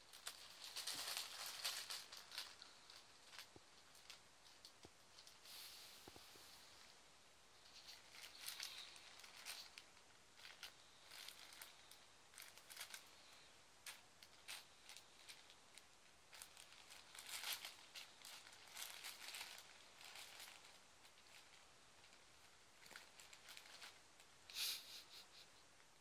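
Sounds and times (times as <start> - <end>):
plastic bag crinkling: 0.0 - 6.9, 7.6 - 24.5.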